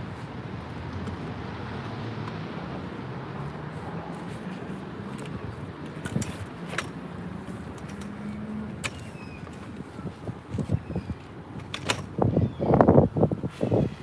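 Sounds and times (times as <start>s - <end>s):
distant road traffic hum: 0.0s - 14.0s
sharp clicks: 5.2s - 9.8s.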